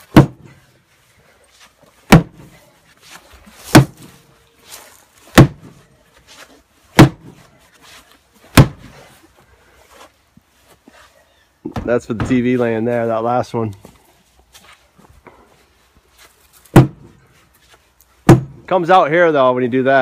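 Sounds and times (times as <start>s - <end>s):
sledgehammer blows on wood: 0.0s - 0.7s, 2.0s - 2.6s, 3.5s - 4.3s, 5.3s - 5.8s, 6.9s - 7.5s, 8.5s - 9.1s, 16.7s - 17.2s, 18.2s - 18.7s.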